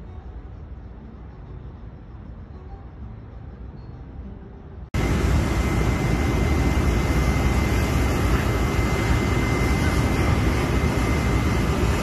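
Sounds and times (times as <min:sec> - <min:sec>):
water cannon jets rushing: 0:05.0 - 0:12.0.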